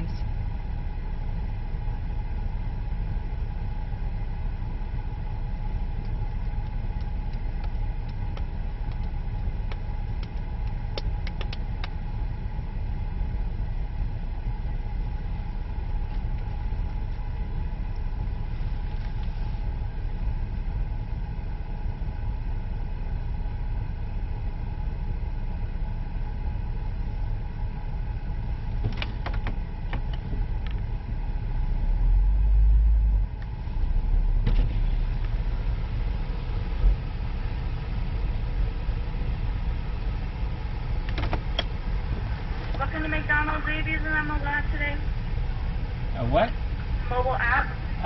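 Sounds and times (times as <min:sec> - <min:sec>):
car engine and road noise: 0:00.0 - 0:48.0.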